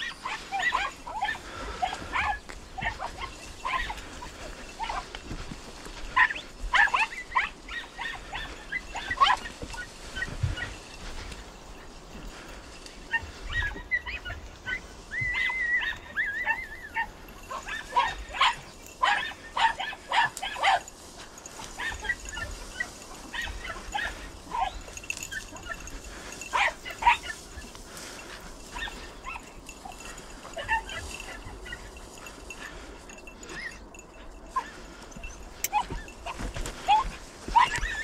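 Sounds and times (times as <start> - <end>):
hounds yelping and barking: 0.0 - 38.0
dog whining: 13.1 - 18.2.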